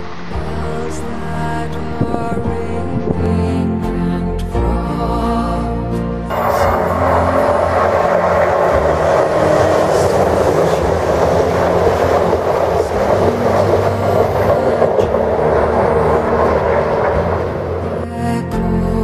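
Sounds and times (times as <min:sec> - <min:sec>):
train wheels rumbling on rails: 0:06.3 - 0:18.2.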